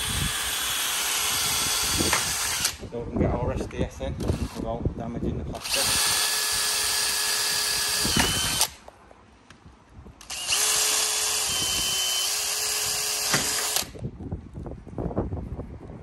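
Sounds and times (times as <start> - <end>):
cordless drill whining: 0.0 - 2.8, 4.2 - 4.7, 5.6 - 8.8, 10.2 - 14.0.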